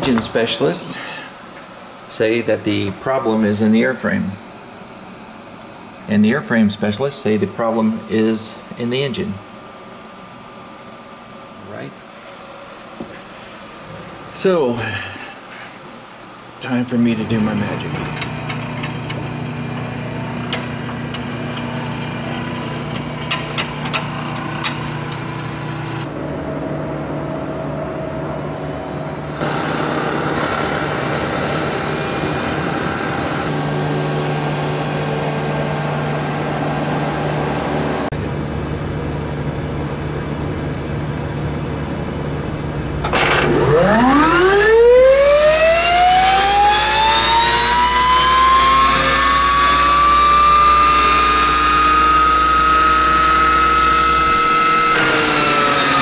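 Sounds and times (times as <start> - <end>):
steady machinery hum: 0.0 - 56.0
turbofan engine spooling up whine: 17.4 - 56.0.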